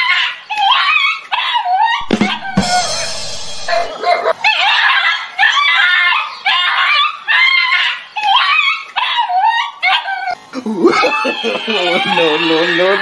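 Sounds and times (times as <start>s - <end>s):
dog barking and yelping: 0.0s - 10.4s.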